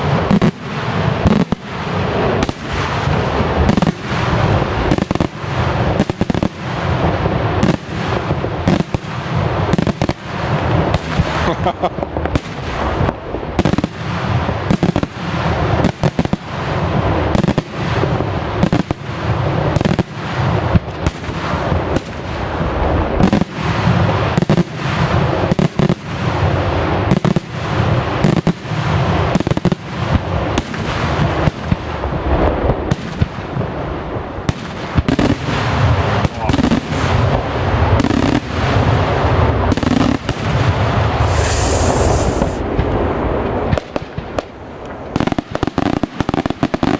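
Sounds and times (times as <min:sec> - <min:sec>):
fireworks shells bursting: 0:41.1 - 0:42.7
brief hiss: 0:41.2 - 0:42.7.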